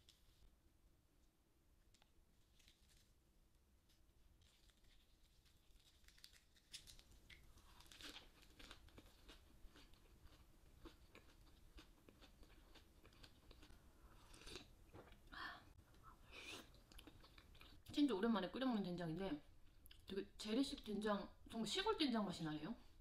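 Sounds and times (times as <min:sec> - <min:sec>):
lettuce crunching while chewing: 0:04.4 - 0:14.7.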